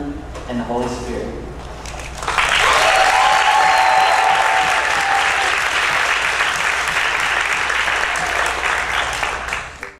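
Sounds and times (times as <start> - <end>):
congregation applauding: 1.9 - 9.9
crowd cheering: 2.2 - 9.9.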